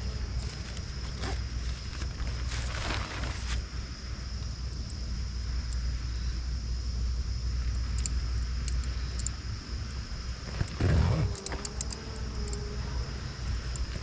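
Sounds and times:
light metallic clicks: 0:07.8 - 0:09.4, 0:10.6 - 0:12.7.

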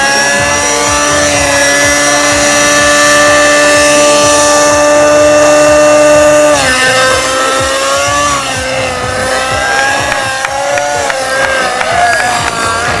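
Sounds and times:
rc helicopter engine and rotors: 0:00.0 - 0:13.0.

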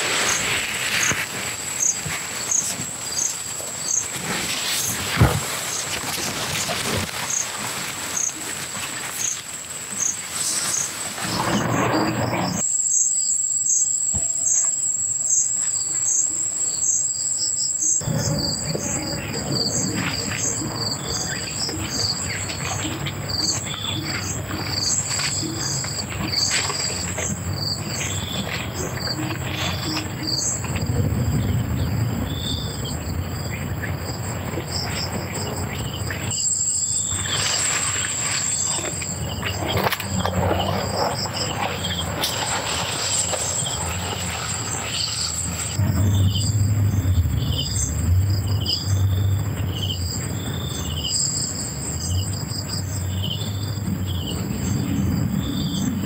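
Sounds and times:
broad rustling noise: 0:00.0 - 0:12.6, 0:18.0 - 0:46.9
insects chirping: 0:00.0 - 0:56.0.

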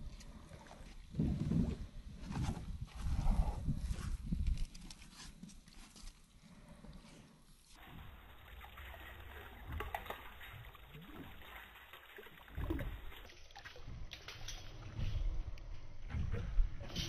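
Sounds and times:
water splashing and trickling: 0:07.6 - 0:17.0.

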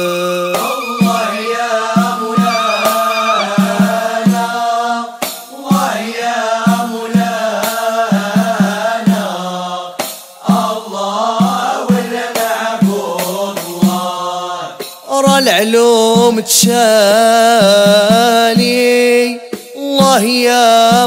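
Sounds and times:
hand drums beating: 0:00.0 - 0:03.8
voices singing a wavering melody: 0:00.0 - 0:07.0.

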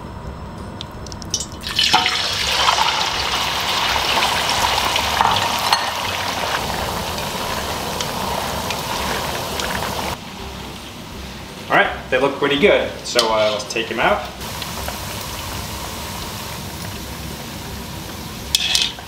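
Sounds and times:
meat sizzling in hot oil: 0:01.3 - 0:10.2, 0:13.2 - 0:19.0.

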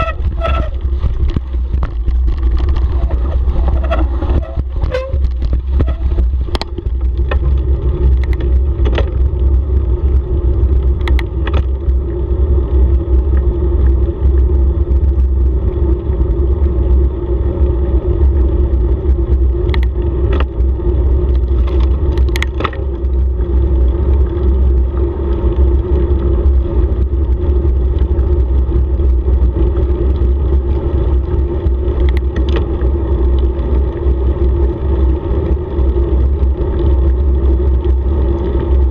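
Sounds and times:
clicks and rattles from bumps: 0:00.0 - 0:09.5, 0:10.6 - 0:12.2, 0:19.4 - 0:20.7, 0:21.3 - 0:34.2
tyres humming on asphalt: 0:00.0 - 0:38.9
wind buffeting microphone: 0:00.0 - 0:38.9.

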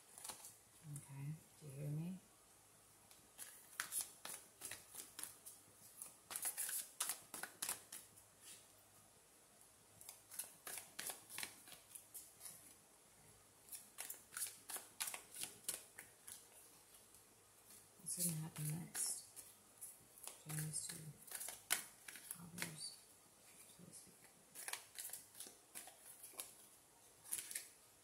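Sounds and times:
cards being shuffled: 0:00.0 - 0:00.5, 0:03.3 - 0:08.6, 0:10.0 - 0:12.8, 0:13.7 - 0:17.0, 0:17.6 - 0:22.8, 0:24.5 - 0:27.8.

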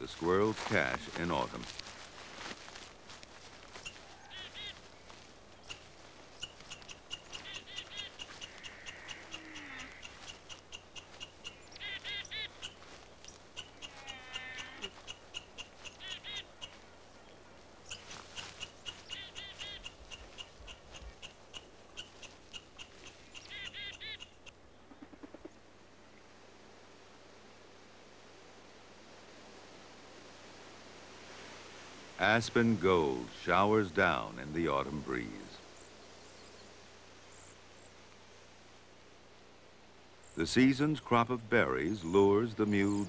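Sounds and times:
squirrel squeaky calls: 0:03.7 - 0:16.9, 0:17.8 - 0:25.4.

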